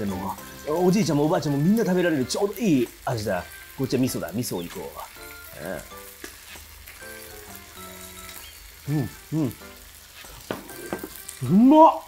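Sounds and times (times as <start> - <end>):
meat sizzling on a grill: 0.0 - 12.0
person humming: 8.8 - 9.6.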